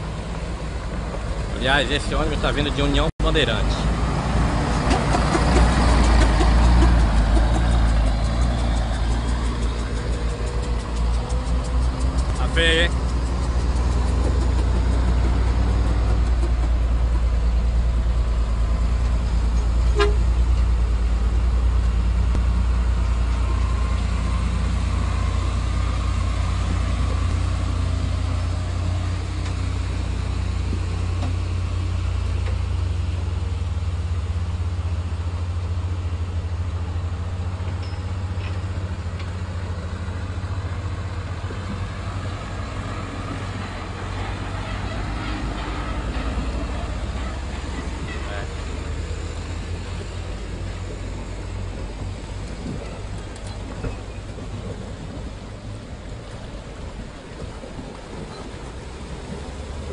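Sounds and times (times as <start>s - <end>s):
heavy vehicle engine rumble: 0.0s - 59.9s
horn toot: 19.9s - 20.4s.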